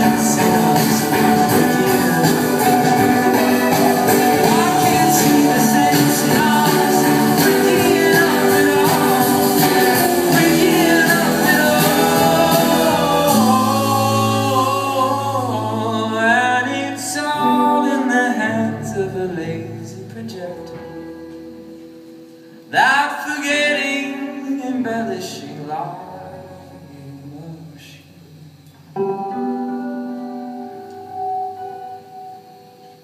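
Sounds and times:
live band playing: 0.0 - 19.2
man singing: 0.0 - 21.2, 22.7 - 28.6
guitar: 0.0 - 33.0.

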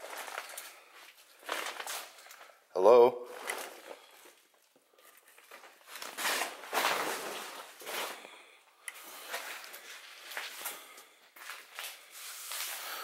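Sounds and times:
rustling: 0.0 - 2.6, 3.3 - 13.0
footsteps scuffing over debris: 9.2 - 13.0.

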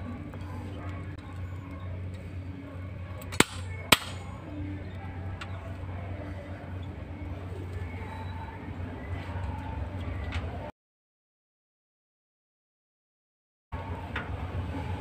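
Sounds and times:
sharp switch clicks: 3.2 - 4.2.

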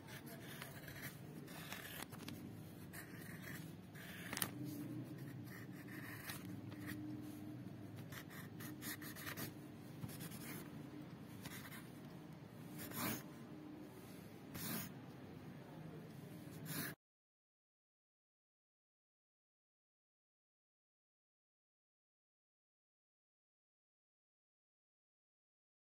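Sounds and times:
faint steady hum: 0.0 - 16.9.

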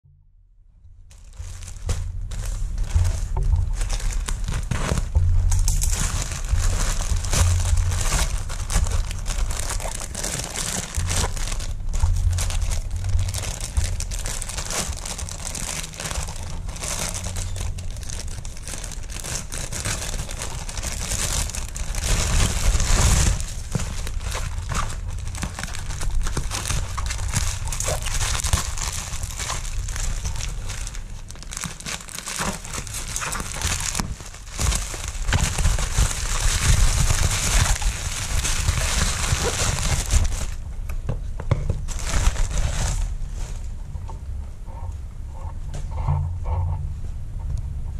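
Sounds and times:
bubble wrap crinkling: 1.0 - 46.6
plastic mailer bag crinkling and tearing: 1.1 - 40.8, 41.6 - 43.8.

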